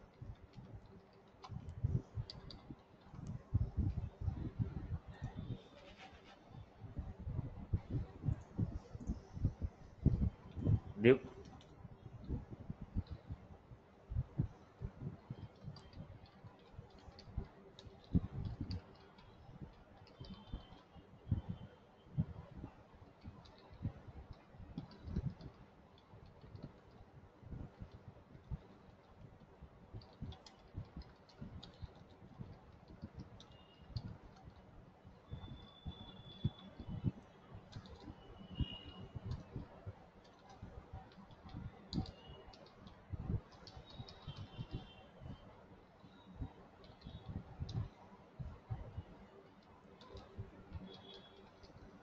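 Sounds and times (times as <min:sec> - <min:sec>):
computer keyboard typing: 0:00.1 - 0:04.0, 0:15.4 - 0:20.9, 0:23.4 - 0:27.0, 0:30.0 - 0:34.6, 0:35.3 - 0:45.0, 0:49.5 - 0:51.9
keyboard keystrokes: 0:30.0 - 0:34.6, 0:37.7 - 0:45.0.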